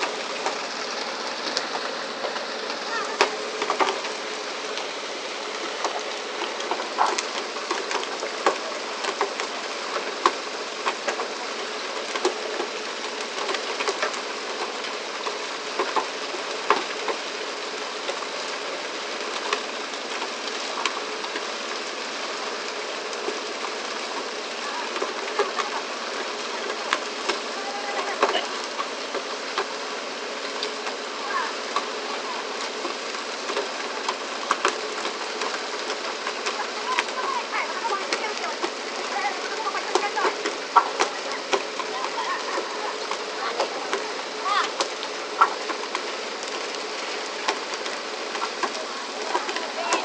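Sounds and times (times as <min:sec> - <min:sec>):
boat engine rushing: 0:00.0 - 0:50.0
water rushing along hull: 0:00.0 - 0:50.0
fish slapping on deck: 0:30.6 - 0:50.0.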